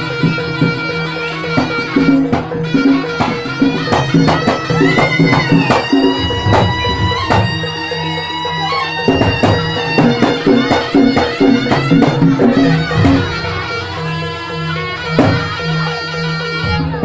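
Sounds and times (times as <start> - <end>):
pitched percussion strikes: 0.0 - 17.0
shawm playing sustained melody: 0.0 - 17.0
low drone: 11.5 - 16.9.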